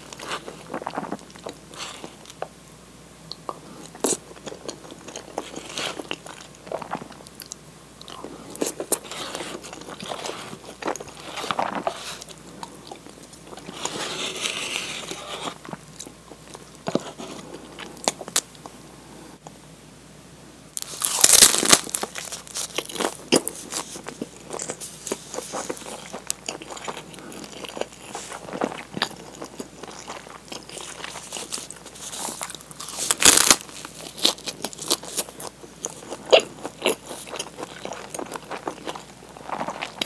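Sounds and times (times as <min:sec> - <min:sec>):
biting and chewing: 0:03.3 - 0:18.5, 0:20.8 - 0:40.0
spoon scraping paper cup: 0:13.7 - 0:15.6
plastic film crinkling: 0:20.8 - 0:24.1, 0:32.9 - 0:34.3.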